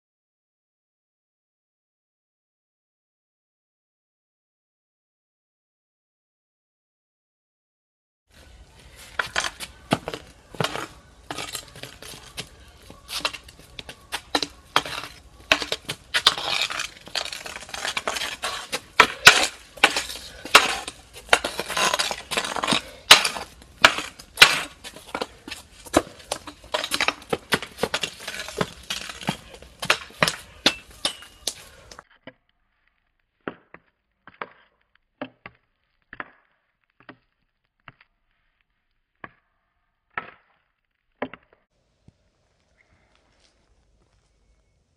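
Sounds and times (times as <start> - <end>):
hockey stick tapping ball on concrete: 9.2 - 32.4, 33.4 - 38.2, 39.2 - 39.5, 40.1 - 41.7.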